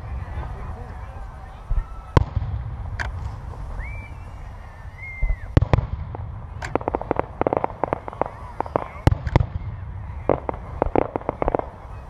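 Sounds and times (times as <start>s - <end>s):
fireworks bangs: 0.0s - 12.0s
steady low rumble: 0.0s - 12.0s
short high whistles: 3.7s - 5.6s.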